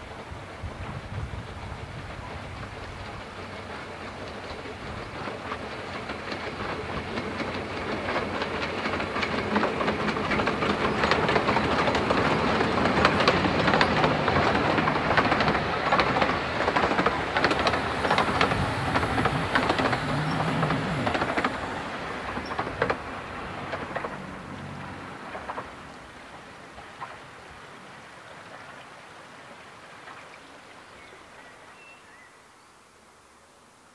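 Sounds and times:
steam engine working by: 0.0 - 32.3
wheel clicks over rail joints: 2.2 - 27.4
carriages clattering: 2.8 - 27.7.

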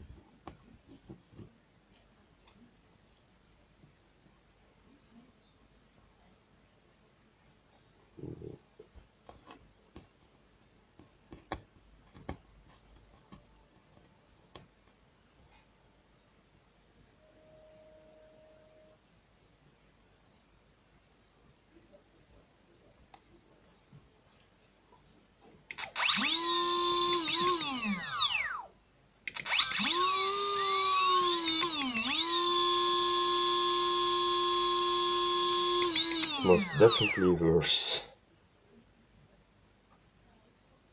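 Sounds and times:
electric motor whine: 25.8 - 28.6, 29.4 - 37.2.

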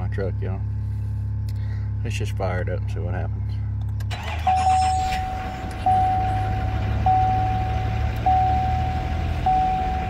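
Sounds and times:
diesel engine idling: 0.0 - 10.0
cab chime ringing: 4.3 - 10.0.

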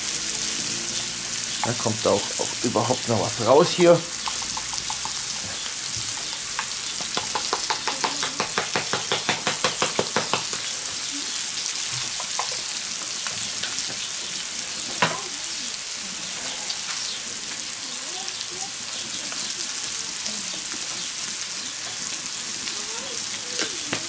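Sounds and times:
food sizzling in a pan: 0.0 - 24.0
spice shaker clicking: 4.2 - 5.4.

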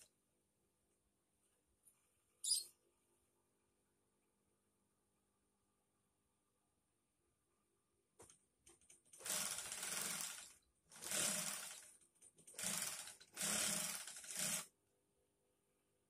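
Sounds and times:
sewing machine stitching: 9.1 - 14.7.

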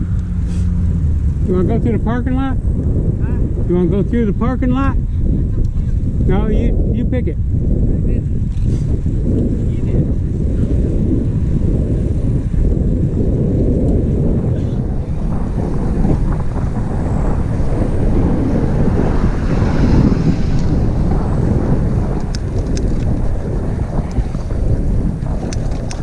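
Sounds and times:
wind buffeting microphone: 0.0 - 26.0
faint clicks: 22.2 - 23.2, 25.4 - 26.0.

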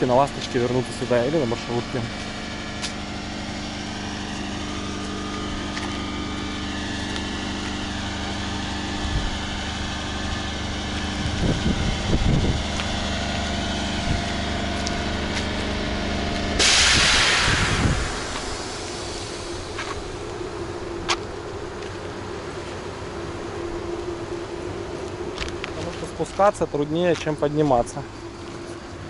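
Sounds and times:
train humming at station: 0.0 - 29.0
loud hiss: 16.5 - 21.0.

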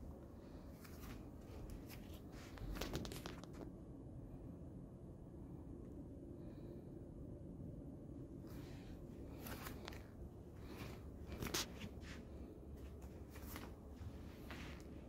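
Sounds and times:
low room hum: 0.0 - 15.0
soft rustling and scuffing: 0.1 - 3.7, 8.5 - 15.0.

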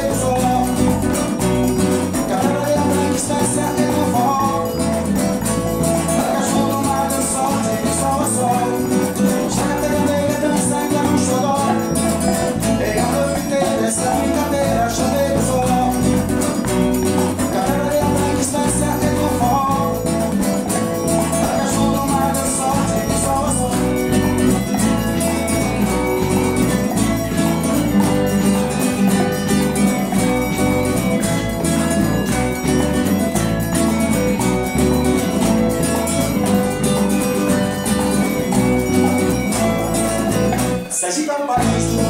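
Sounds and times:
man singing: 0.0 - 29.3, 38.1 - 42.0
bass: 0.0 - 40.9, 41.6 - 42.0
acoustic guitar: 0.0 - 42.0
drums and hand percussion: 0.0 - 42.0
electric guitar: 0.0 - 42.0.

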